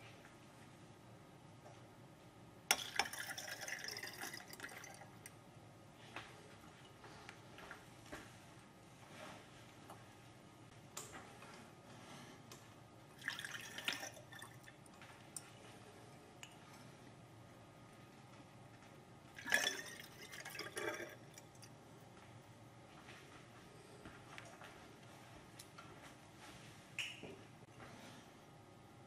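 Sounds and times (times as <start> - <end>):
liquid trickling into glass: 2.7 - 5.3, 13.2 - 14.8, 19.4 - 21.7.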